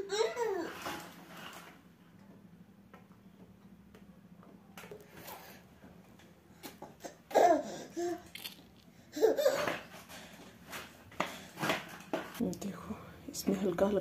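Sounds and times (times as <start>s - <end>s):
baby laughing: 0.0s - 0.8s, 6.8s - 8.3s, 9.0s - 9.9s.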